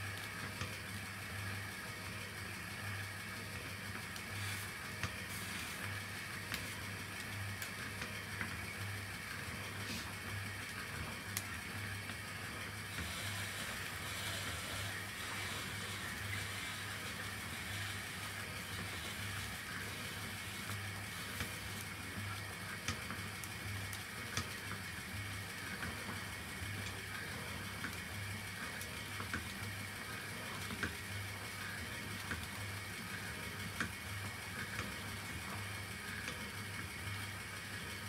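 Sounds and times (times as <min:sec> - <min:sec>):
film scrolling: 0:00.1 - 0:37.8
pulsing motor hum: 0:08.6 - 0:22.6.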